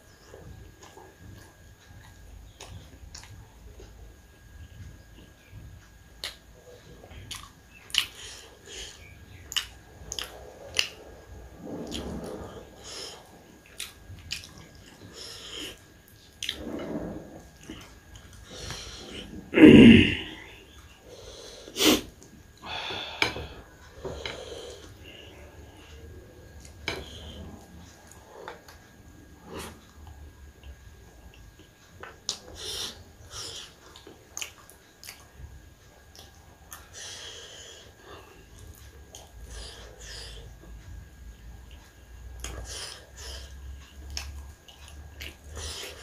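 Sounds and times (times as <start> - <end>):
soft eating sounds: 0.0 - 46.0
chewing: 0.2 - 3.9, 6.2 - 11.1, 11.8 - 19.5, 29.4 - 37.2, 41.6 - 46.0.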